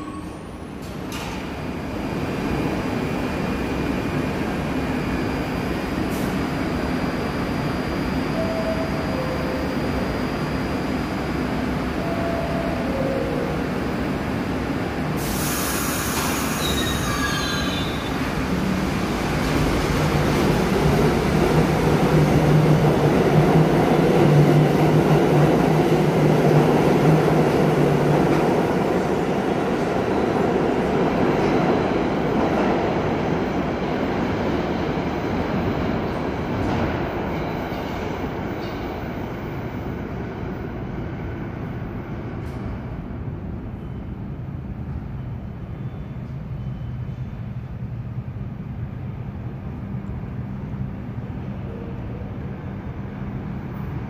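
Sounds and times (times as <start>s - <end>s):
train hum and wheel rumble: 0.0s - 54.0s
air brake hiss: 15.2s - 17.8s.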